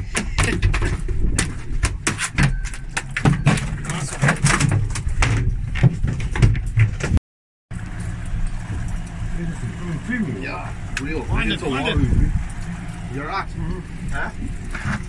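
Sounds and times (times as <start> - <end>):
fish slapping on boat deck: 0.0 - 7.2
low rumble: 7.7 - 15.0.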